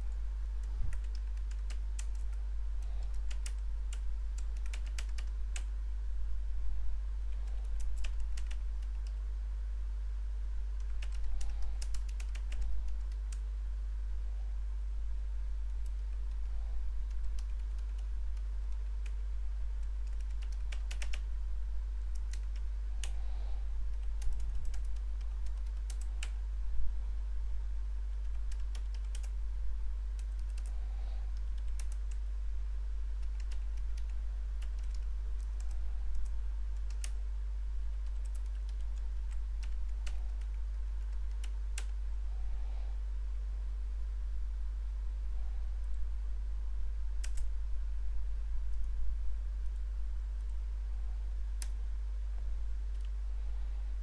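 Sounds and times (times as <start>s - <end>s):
steady low hum: 0.0s - 54.0s
computer keyboard key clicks: 0.9s - 2.4s, 3.0s - 5.7s, 7.4s - 9.2s, 10.8s - 13.4s, 19.8s - 21.2s, 28.2s - 29.3s, 30.2s - 30.8s, 31.4s - 32.2s, 33.2s - 37.2s, 38.0s - 42.0s.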